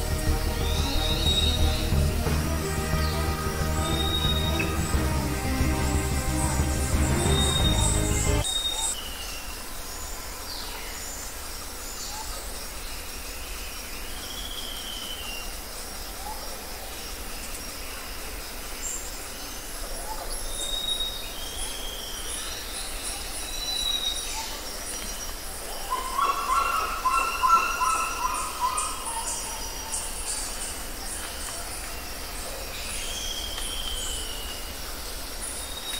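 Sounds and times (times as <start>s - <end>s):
high-pitched wavering squeals: 0.0s - 8.5s.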